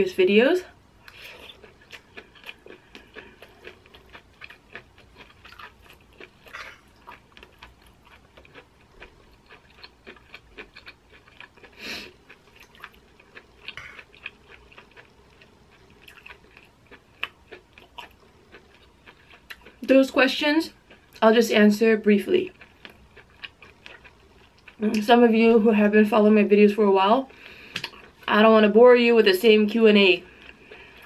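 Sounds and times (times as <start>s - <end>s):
person chewing food: 1.0s - 19.9s, 20.7s - 21.2s, 22.5s - 25.0s, 27.3s - 28.3s, 30.2s - 31.0s.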